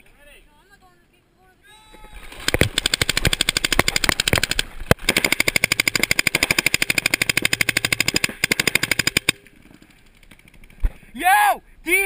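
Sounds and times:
paintball marker firing: 0:02.4 - 0:09.4.

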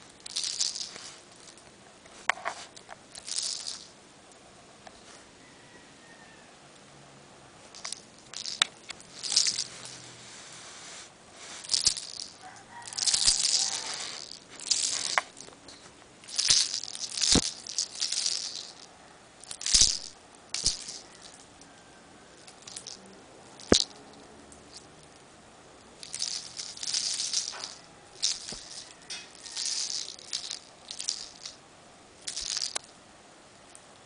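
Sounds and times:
plant rustling and rattling: 0:00.0 - 0:03.9, 0:07.6 - 0:21.8, 0:22.4 - 0:25.2, 0:26.0 - 0:31.6, 0:32.2 - 0:32.9.

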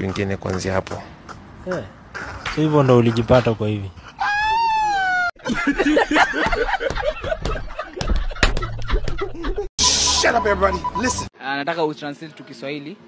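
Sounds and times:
people laughing and chuckling: 0:05.4 - 0:09.7.

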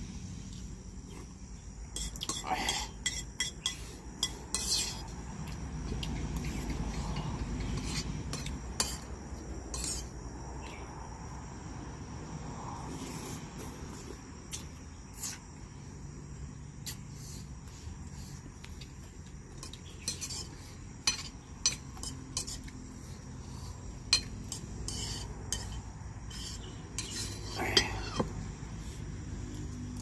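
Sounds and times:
insects trilling: 0:00.0 - 0:30.0
metal spoon scraping a plate: 0:02.0 - 0:05.1, 0:06.4 - 0:09.1, 0:09.7 - 0:10.2, 0:19.6 - 0:22.8, 0:23.6 - 0:28.3.

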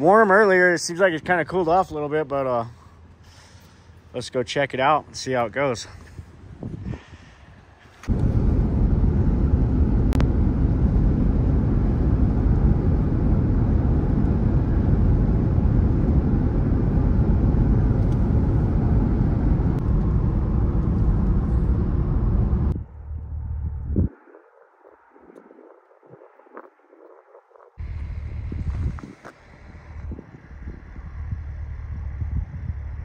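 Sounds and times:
road and wind rumble in truck: 0:04.8 - 0:24.2, 0:27.8 - 0:33.0.

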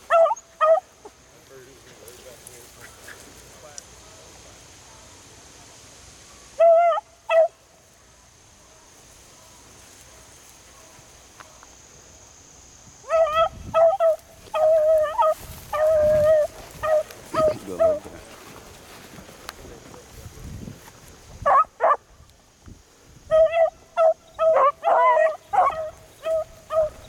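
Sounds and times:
beagles baying: 0:00.0 - 0:01.2, 0:06.4 - 0:07.6, 0:13.0 - 0:18.6, 0:21.4 - 0:22.0, 0:23.3 - 0:27.0.

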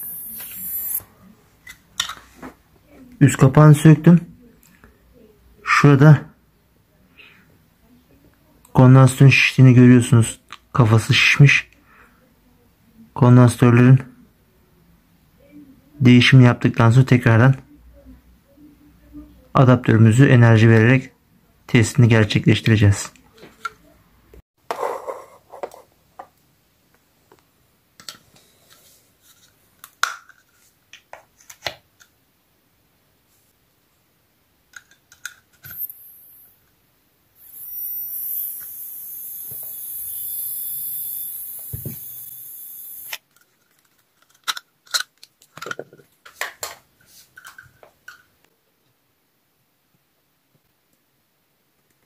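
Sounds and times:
phone charger high-pitched whine: 0:00.0 - 0:01.0, 0:35.6 - 0:36.6, 0:37.4 - 0:43.2.

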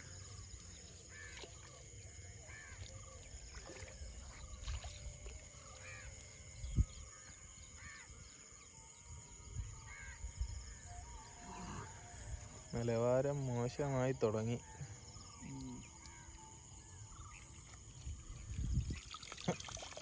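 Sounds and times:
insect hum: 0:00.0 - 0:20.0
birds chirping: 0:11.2 - 0:19.6.

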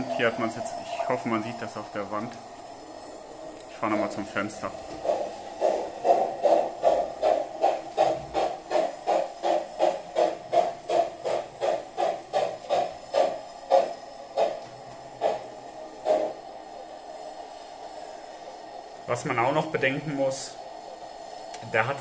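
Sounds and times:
steam locomotive chuffing: 0:00.0 - 0:22.0.

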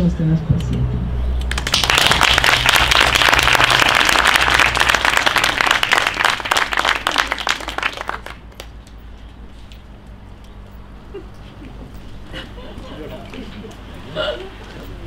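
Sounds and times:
audience applauding: 0:01.5 - 0:08.8.

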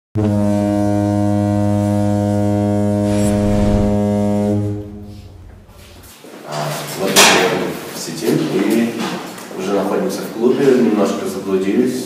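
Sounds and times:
train horn: 0:00.2 - 0:06.0.

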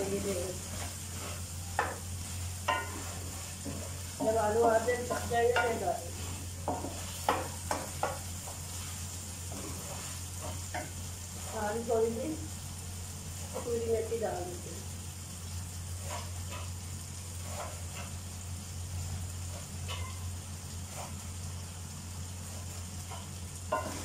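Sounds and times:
light sizzle: 0:00.0 - 0:24.0
spatula stirring in a pan: 0:00.0 - 0:24.0
spatula knocking against metal pan: 0:05.0 - 0:05.9, 0:06.6 - 0:08.2, 0:19.9 - 0:20.2.

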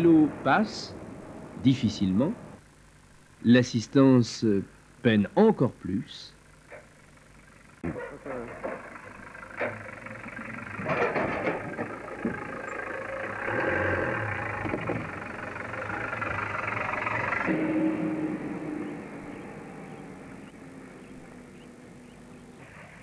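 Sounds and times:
van engine running: 0:00.0 - 0:02.6, 0:04.4 - 0:23.0
wheels knocking on wooden boards: 0:07.8 - 0:17.5.

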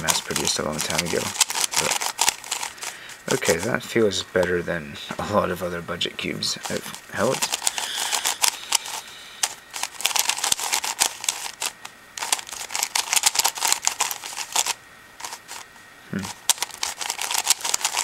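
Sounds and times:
plastic cube clicking and clacking: 0:00.0 - 0:02.7, 0:06.7 - 0:15.6, 0:16.5 - 0:18.0.

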